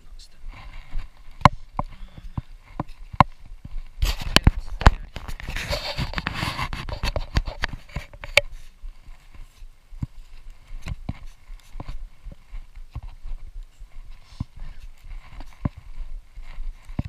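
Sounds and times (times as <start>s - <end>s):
brushing through dry weeds: 0.3s - 17.0s
footsteps crunching over debris: 0.3s - 17.0s
knocks and scrapes: 0.5s - 17.0s.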